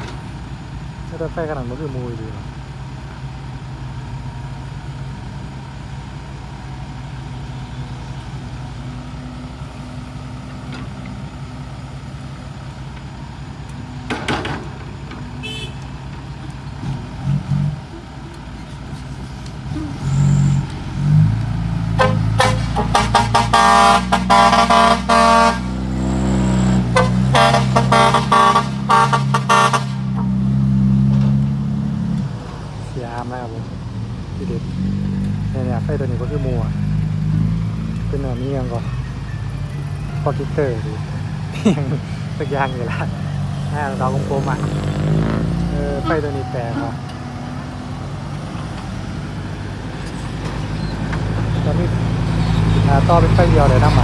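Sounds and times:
diesel truck engine: 0.0s - 54.0s
truck horn toots: 15.4s - 16.0s, 21.9s - 30.5s, 41.7s - 47.1s.

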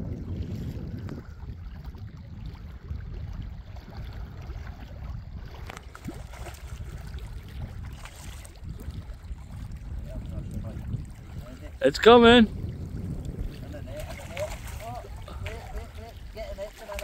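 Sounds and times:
water lapping at rocky shore: 0.0s - 17.0s
wind rumbling on microphone: 0.0s - 17.0s
fish splashing at surface: 5.5s - 8.9s, 13.9s - 15.8s.

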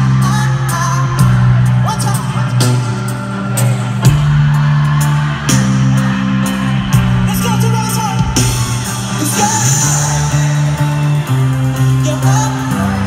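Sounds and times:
deep bass notes: 0.0s - 13.0s
person singing: 7.3s - 13.0s.

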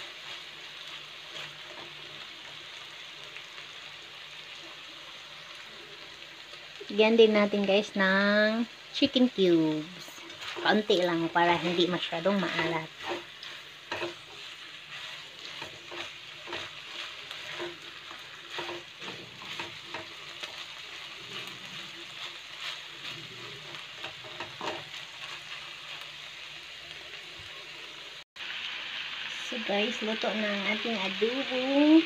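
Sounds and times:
spatula scraping a pan: 0.0s - 2.8s, 9.8s - 26.3s
food sizzling in a pan: 0.0s - 32.0s.

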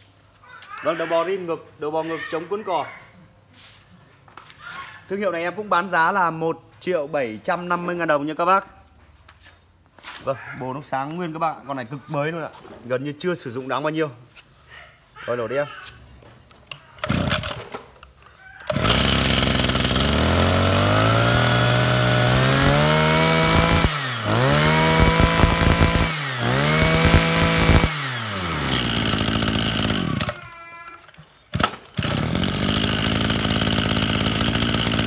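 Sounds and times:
two-stroke engine revving: 17.0s - 17.6s, 18.7s - 30.5s, 31.5s - 35.0s.

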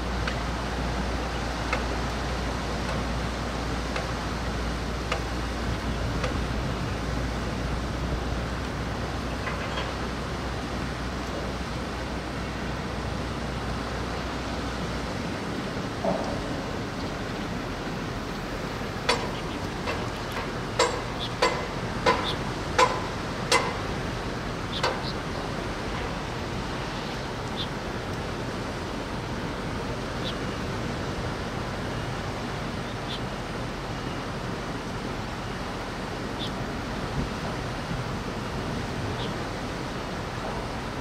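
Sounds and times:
wind and rain: 0.0s - 41.0s
ringing metallic knocks: 19.0s - 23.8s.

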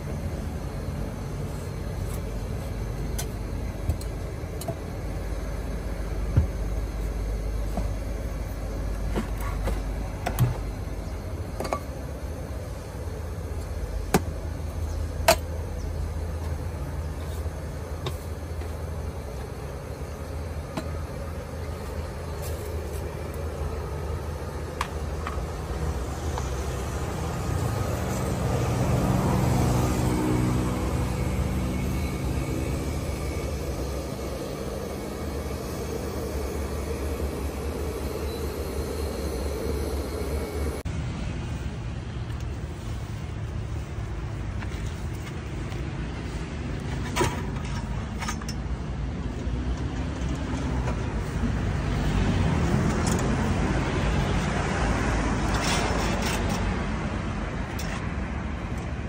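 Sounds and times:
road traffic rumble: 0.0s - 59.0s
motor vehicle passing: 25.5s - 40.9s.

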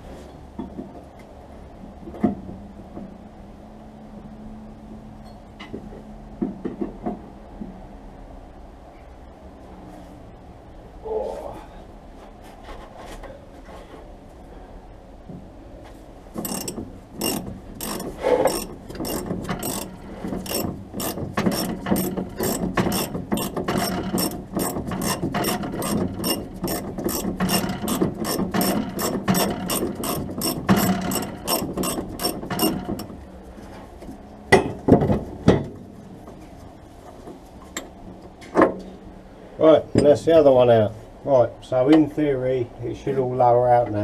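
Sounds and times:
ratchet spanner clicking: 16.4s - 33.1s.

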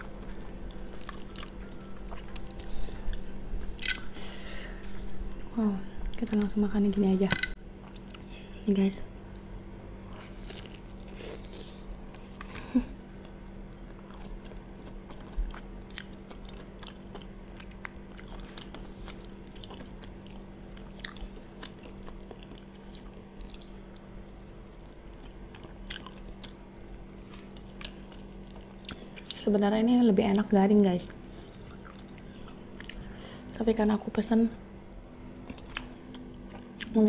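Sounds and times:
chewing fried fish: 0.0s - 8.3s, 9.4s - 29.5s, 31.1s - 33.6s, 34.9s - 37.0s
low hum: 0.0s - 16.5s
wet mouth clicks and smacks: 2.4s - 6.5s.

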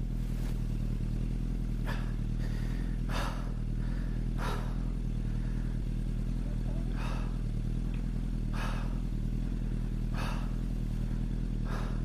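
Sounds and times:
motorcycle engine running: 0.0s - 12.0s
person breathing laboured: 1.7s - 6.1s, 6.7s - 12.0s.

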